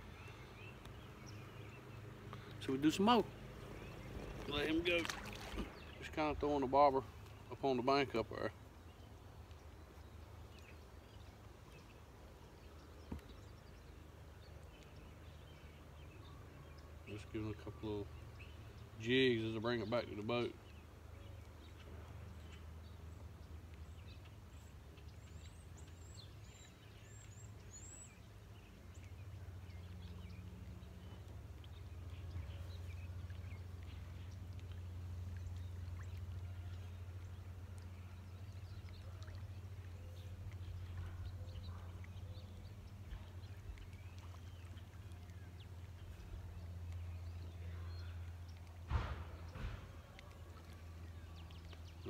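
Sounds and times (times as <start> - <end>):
sharp knock: 48.9 - 50.0.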